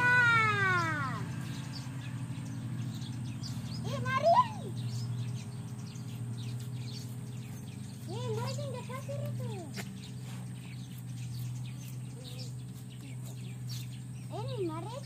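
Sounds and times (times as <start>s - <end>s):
children calling out: 0.0s - 1.4s, 3.8s - 4.9s.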